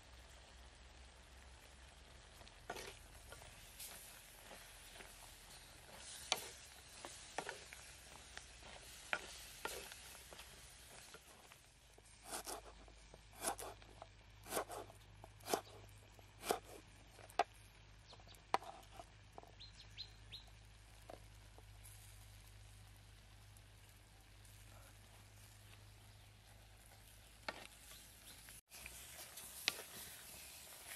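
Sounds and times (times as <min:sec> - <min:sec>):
knife chopping on wooden board: 0:13.4 - 0:13.8.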